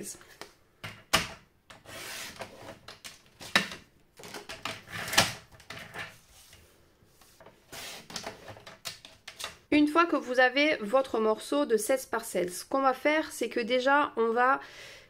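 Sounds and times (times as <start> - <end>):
card rustling and sliding on plastic: 1.8 - 9.6.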